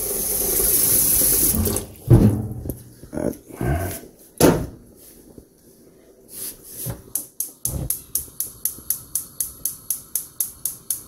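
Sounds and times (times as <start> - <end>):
metal pot clunk on grate: 1.6 - 2.8.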